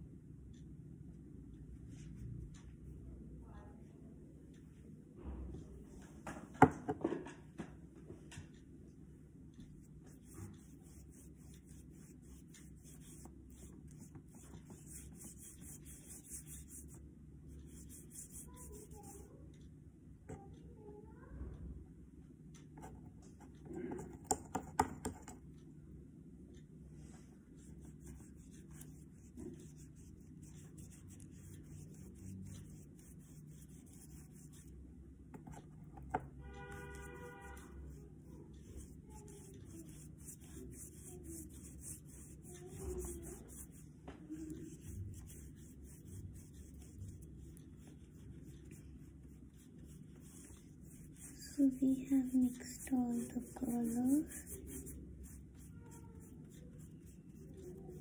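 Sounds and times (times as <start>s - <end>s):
low steady hum: 0.0s - 58.0s
paintbrush swishing on paper: 9.8s - 19.3s, 27.6s - 34.7s, 36.4s - 58.0s.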